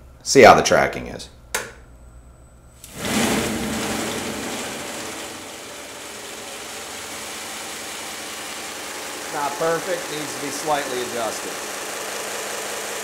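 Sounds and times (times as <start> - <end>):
belt grinder running: 2.9 - 13.0.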